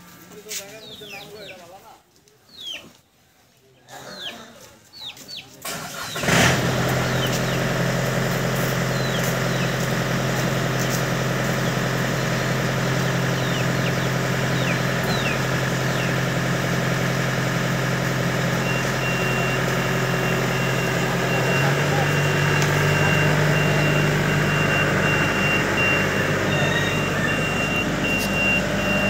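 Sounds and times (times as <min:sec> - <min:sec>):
diesel engine starting and idling: 0:05.6 - 0:29.0
high beeping: 0:18.0 - 0:29.0.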